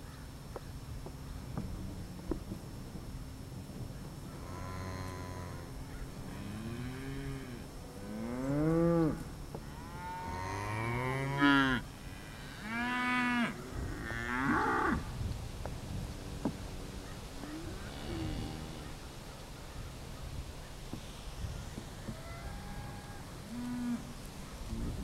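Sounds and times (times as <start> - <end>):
cattle mooing: 17.4 - 19.0.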